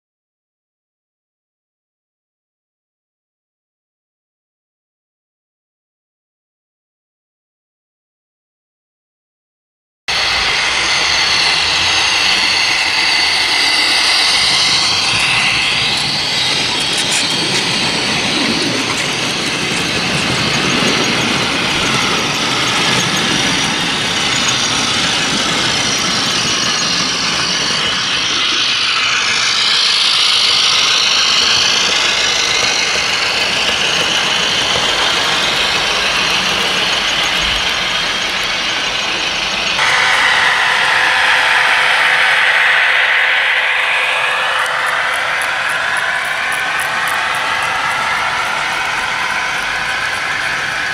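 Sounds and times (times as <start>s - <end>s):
model diesel engine sound: 10.1s - 50.9s
model wagons running on track: 10.2s - 28.6s, 29.9s - 39.8s, 45.1s - 50.9s.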